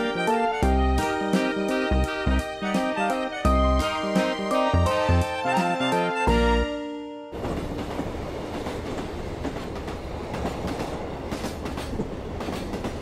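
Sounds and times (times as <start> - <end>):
train rumbling on track: 7.3 - 13.0
wheels clacking on rail joints: 7.4 - 13.0.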